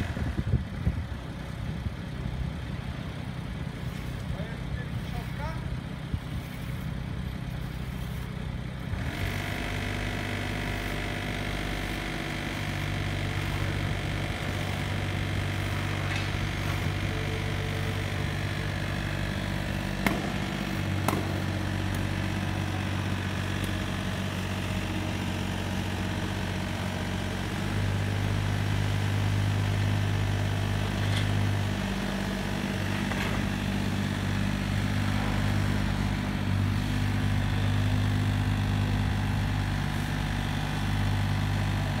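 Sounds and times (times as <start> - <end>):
excavator diesel engines: 0.0 - 42.0
sharp knocks: 20.0 - 21.4.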